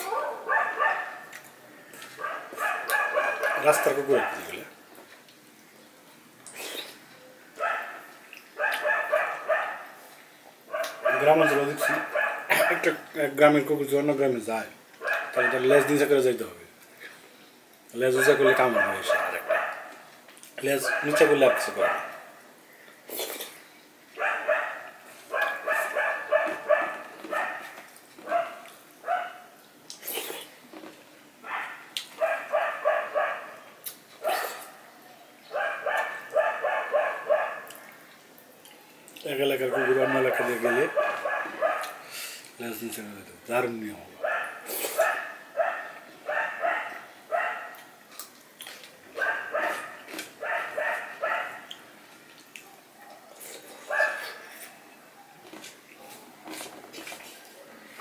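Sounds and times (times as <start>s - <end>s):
dog barking: 0.0s - 1.4s, 2.2s - 4.6s, 7.6s - 10.0s, 10.7s - 13.0s, 15.0s - 16.0s, 18.2s - 20.0s, 20.7s - 22.4s, 24.2s - 29.5s, 31.5s - 33.6s, 35.5s - 37.8s, 39.7s - 42.0s, 44.2s - 47.9s, 49.2s - 51.7s, 52.6s - 54.5s.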